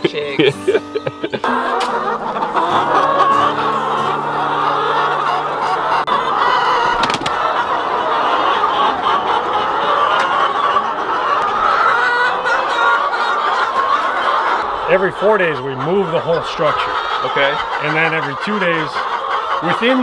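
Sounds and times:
hens clucking and warbling: 0:00.0 - 0:20.0.

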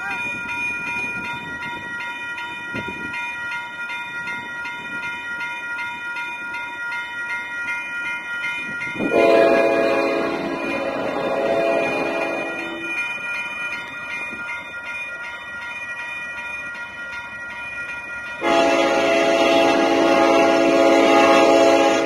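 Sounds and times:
crossing bell ringing: 0:00.0 - 0:22.0
locomotive air horn: 0:09.1 - 0:12.8, 0:18.4 - 0:22.0.

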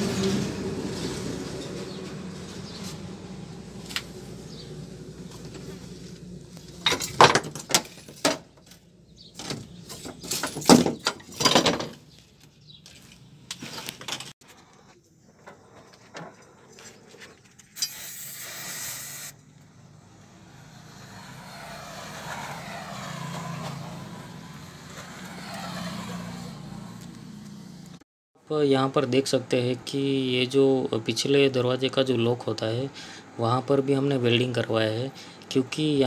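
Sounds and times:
sharp metal knocks and clatter: 0:06.8 - 0:12.1
short hiss: 0:17.8 - 0:19.3.

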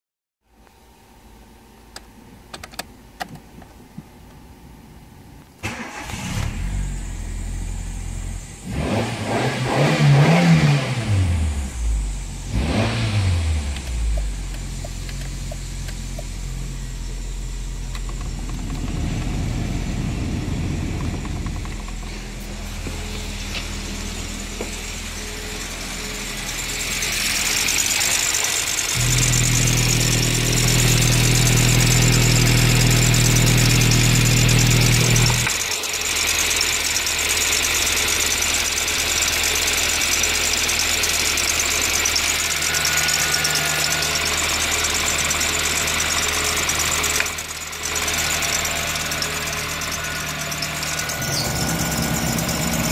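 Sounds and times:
car engine revving and idling: 0:05.7 - 0:52.9.

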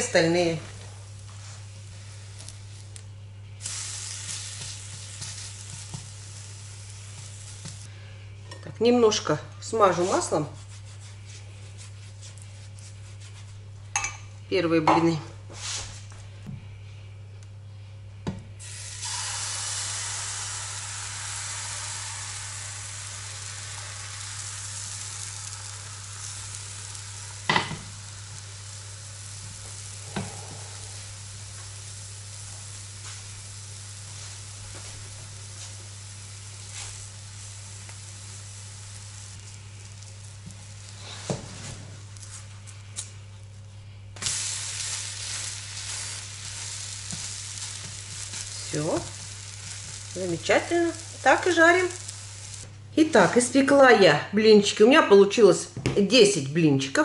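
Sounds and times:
batter sizzling in a frying pan: 0:00.0 - 0:07.9, 0:18.6 - 0:53.8
low steady hum: 0:00.0 - 0:56.9.

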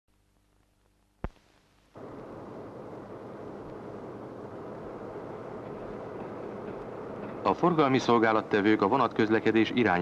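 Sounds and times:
low rumbling of railway yard: 0:01.9 - 0:10.0.

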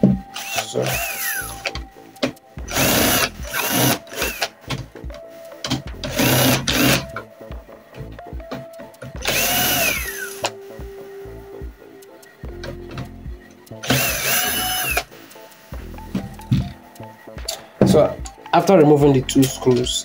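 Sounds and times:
cordless power screwdriver whirring: 0:00.4 - 0:01.7, 0:02.7 - 0:04.5, 0:06.1 - 0:07.0, 0:09.2 - 0:10.5, 0:13.8 - 0:15.1.

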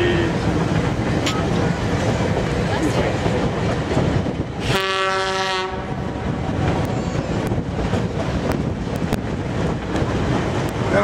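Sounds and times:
track clacks: 0:00.0 - 0:11.0
train car rumbling on rails: 0:00.0 - 0:11.0
locomotive horn blast: 0:04.6 - 0:06.0.

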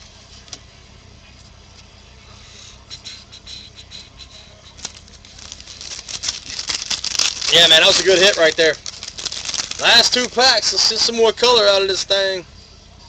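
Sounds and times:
low steady hum: 0:00.0 - 0:13.0
trading cards rustling and clicking: 0:04.7 - 0:11.2.

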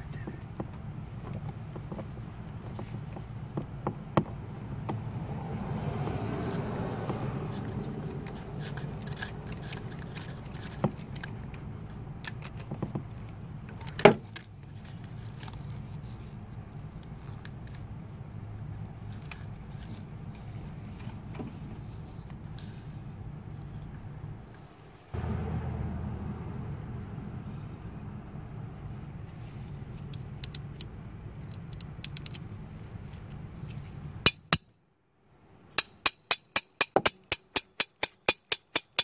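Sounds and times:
steady low hum: 0:25.2 - 0:29.8.

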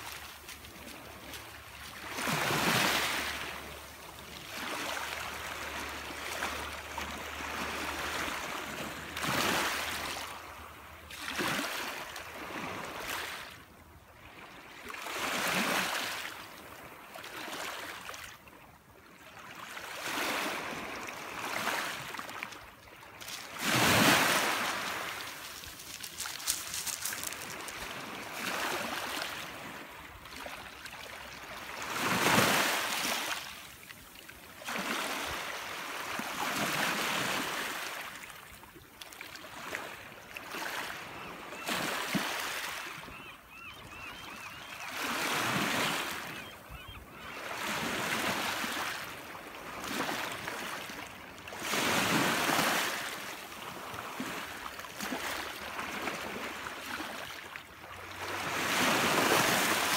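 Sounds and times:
small waves washing onto shore: 0:00.0 - 0:13.6, 0:20.0 - 0:33.8.

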